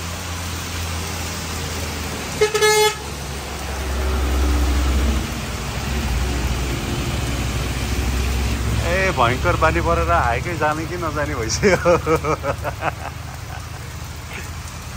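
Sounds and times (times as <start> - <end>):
road and wind noise: 0.0 - 14.9
vehicle horn toot: 2.4 - 3.0.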